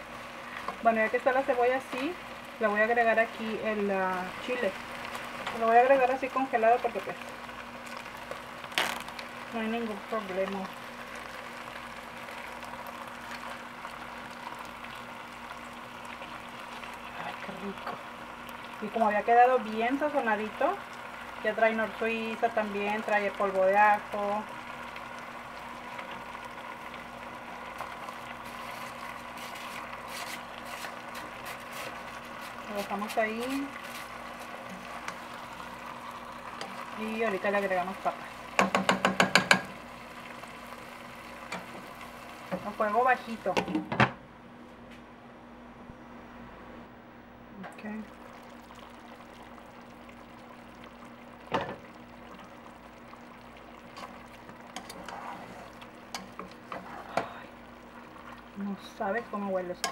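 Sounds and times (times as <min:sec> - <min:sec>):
meat sizzling in a pot: 0:00.0 - 0:44.0, 0:47.8 - 0:59.9
spatula scraping a pot: 0:28.4 - 0:35.2, 0:54.7 - 0:57.3
spoon knocking in a pot: 0:38.6 - 0:39.8.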